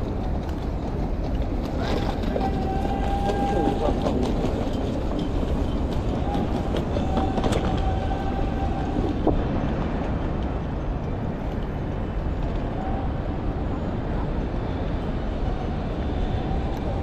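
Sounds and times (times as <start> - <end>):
low rumble of traffic: 0.0 - 17.0.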